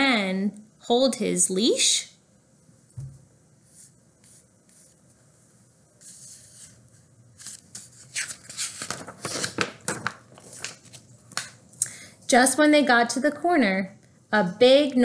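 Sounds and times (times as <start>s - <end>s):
paper pages crackling and rustling: 6.0s - 11.6s.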